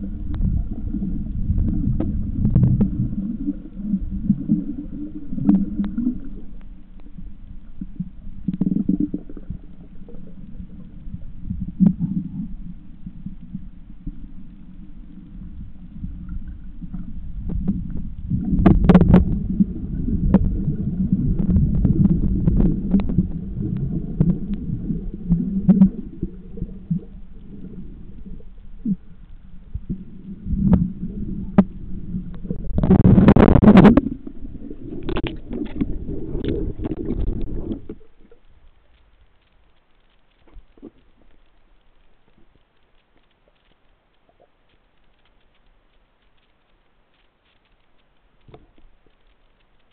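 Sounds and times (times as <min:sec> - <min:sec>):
bubbling: 0:00.0 - 0:39.1
muffled underwater rumble: 0:00.0 - 0:49.9
small clicks: 0:34.9 - 0:49.9.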